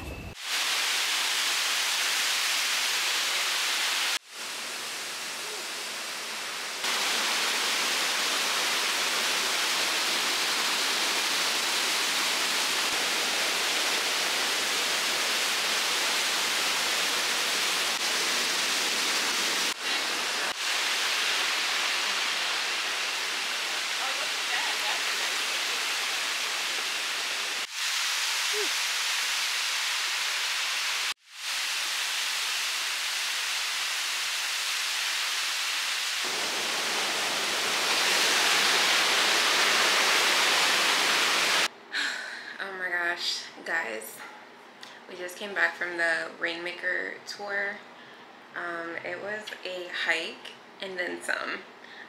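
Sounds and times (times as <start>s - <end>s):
waterfall rushing: 0.4s - 41.7s.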